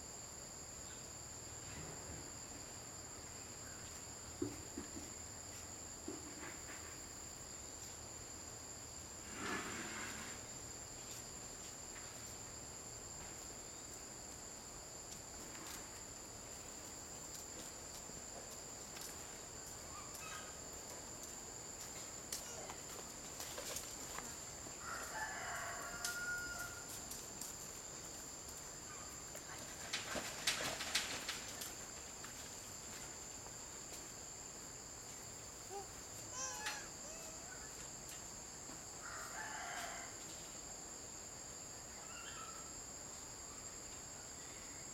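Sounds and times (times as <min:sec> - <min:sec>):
rooster crowing: 0:24.8 - 0:27.0, 0:39.0 - 0:40.2.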